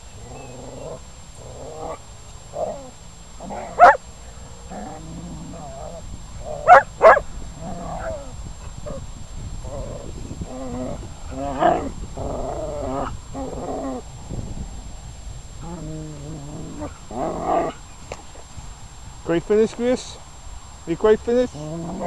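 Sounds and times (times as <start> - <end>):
dogs growling: 0.1 - 4.0, 4.6 - 14.1, 15.6 - 17.8, 21.5 - 22.0.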